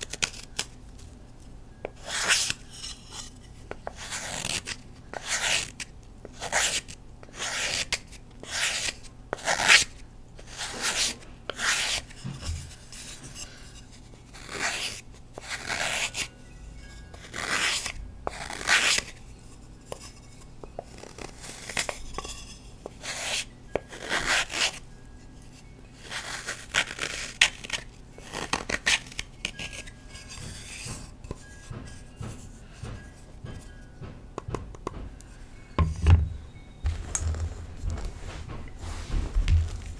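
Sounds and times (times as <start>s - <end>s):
knife scraping chalk: 1.9s - 24.8s, 25.4s - 33.7s.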